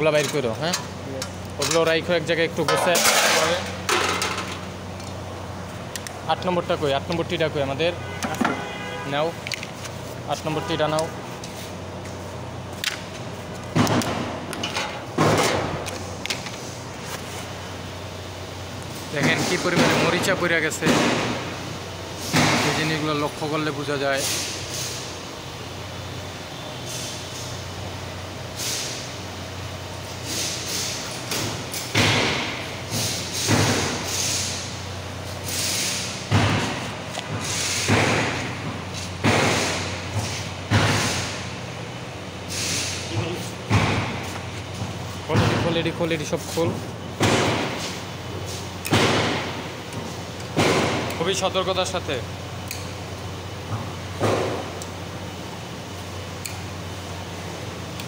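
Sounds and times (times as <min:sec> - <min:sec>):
loud knocks of parts set down: 0:08.2 - 0:08.7, 0:13.7 - 0:16.5, 0:48.9 - 0:49.6
loud thuds with hiss: 0:22.2 - 0:22.8, 0:31.4 - 0:34.6, 0:37.4 - 0:38.6, 0:39.2 - 0:41.4, 0:47.2 - 0:47.8, 0:48.9 - 0:49.6.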